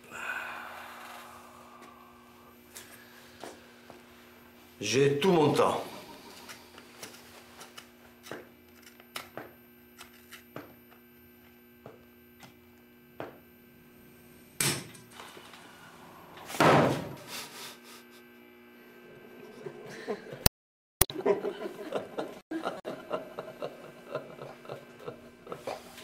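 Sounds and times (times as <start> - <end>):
steady low hum: 0.0 - 20.4.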